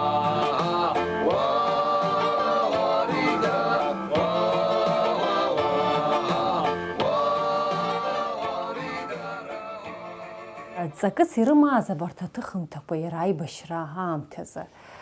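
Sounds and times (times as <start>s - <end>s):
person singing: 0.0s - 10.9s
instrumental backing: 0.0s - 11.2s.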